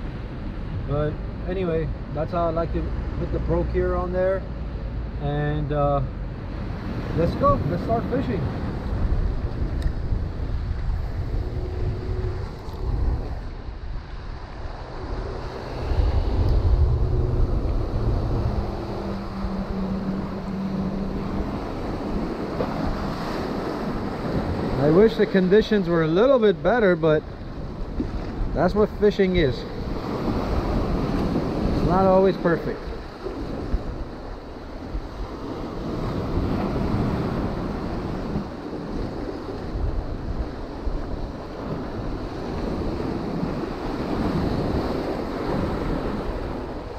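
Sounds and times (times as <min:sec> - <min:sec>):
wind buffeting microphone: 0:06.1 - 0:46.9
low steady hum: 0:08.9 - 0:24.4.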